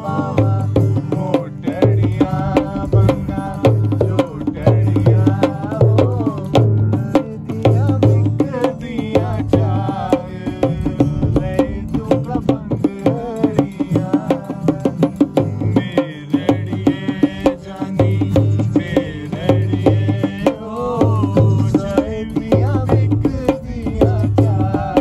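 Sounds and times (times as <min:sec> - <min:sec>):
acoustic guitar: 0:00.0 - 0:25.0.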